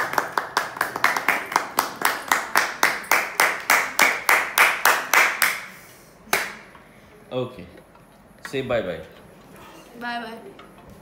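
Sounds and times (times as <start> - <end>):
hands clapping: 0.0 - 5.7, 6.3 - 6.7.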